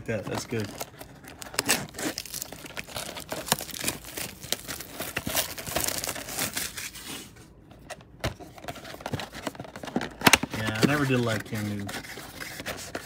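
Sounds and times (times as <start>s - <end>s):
plastic tearing: 0.1s - 7.0s
plastic wrap crinkling: 0.1s - 7.1s.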